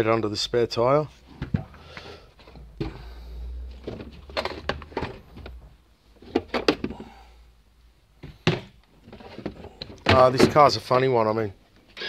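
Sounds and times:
knocks and clunks of handling: 1.2 - 7.2, 8.2 - 10.9.

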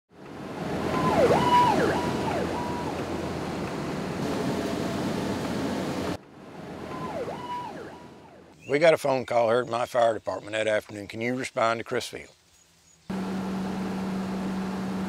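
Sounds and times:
emergency vehicle siren: 0.5 - 5.4, 6.6 - 8.6.

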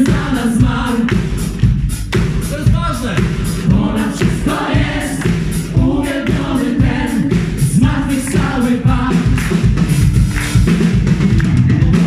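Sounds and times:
gospel choir singing: 0.0 - 1.6, 3.6 - 9.8
steady beat: 0.0 - 12.0.

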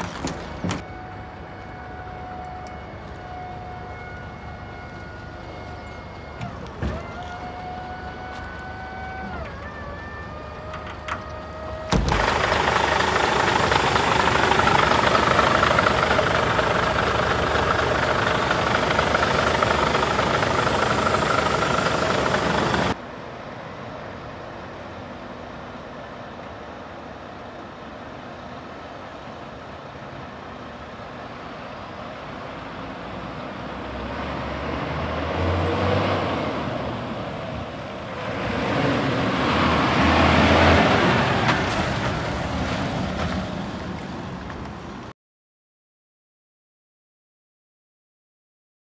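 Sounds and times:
truck diesel engine approaching: 0.0 - 23.0, 30.2 - 45.1
loud mechanical noise: 5.2 - 23.0
steady whine: 10.7 - 23.0.

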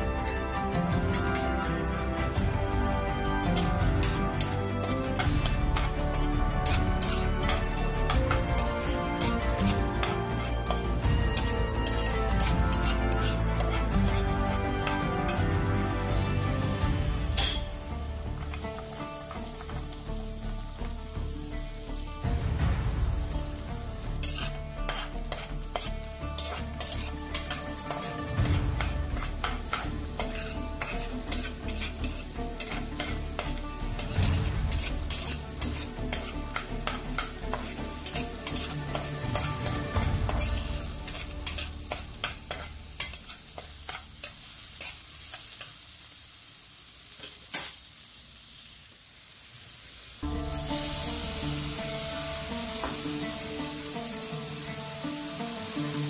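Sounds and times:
light frying sizzle: 0.0 - 56.0
spatula scraping metal pan: 3.6 - 15.7, 17.4 - 17.6, 24.2 - 45.4.

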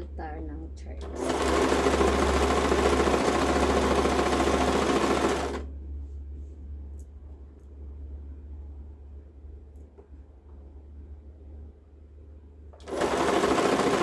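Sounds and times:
sewing machine stitching: 1.0 - 5.7, 12.8 - 14.0.

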